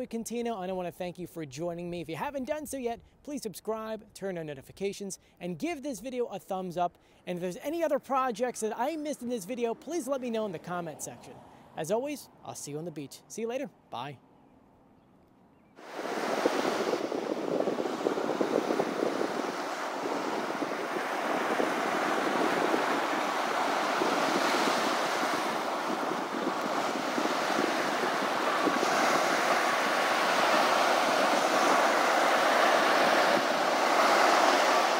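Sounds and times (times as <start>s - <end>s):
ocean surf washing in: 15.8s - 34.9s
wind on microphone: 15.8s - 34.9s.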